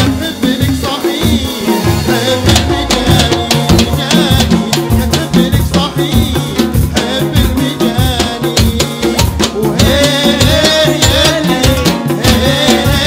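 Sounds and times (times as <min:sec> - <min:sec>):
bass line: 0:00.0 - 0:13.0
drum kit and hand percussion: 0:00.0 - 0:13.0
keyboard melody: 0:00.0 - 0:13.0.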